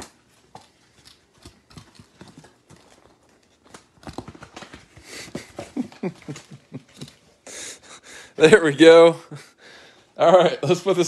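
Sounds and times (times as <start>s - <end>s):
cardboard clicks and crackles: 0.0s - 7.2s.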